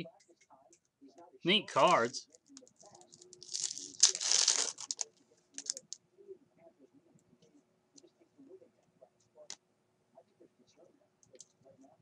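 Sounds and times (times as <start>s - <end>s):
cards clicking and rustling: 1.8s - 6.0s
foil wrapper tearing: 3.2s - 5.9s.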